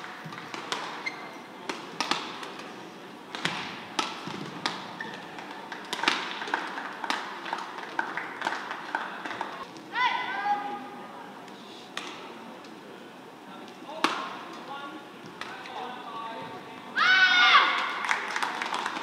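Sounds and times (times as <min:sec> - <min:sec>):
shoe squeaks on court floor: 0:00.9 - 0:01.5, 0:04.9 - 0:05.4
rackets striking shuttlecock: 0:01.6 - 0:02.7, 0:03.3 - 0:06.4.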